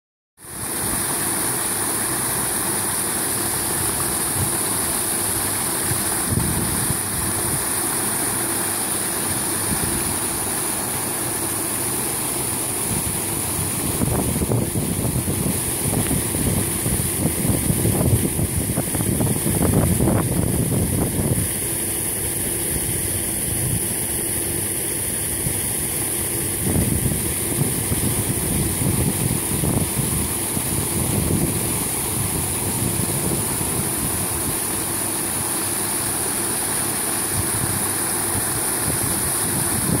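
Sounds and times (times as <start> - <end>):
paddlewheel aerator splashing water: 0.4 - 40.0.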